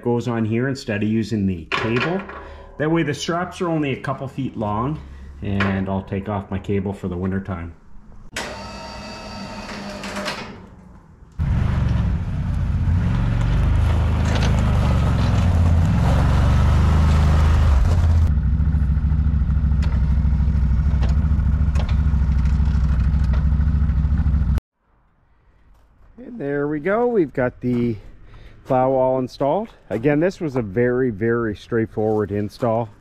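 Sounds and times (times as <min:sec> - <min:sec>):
brief whine: 0:08.4 - 0:10.4
atv engine running: 0:11.4 - 0:24.6.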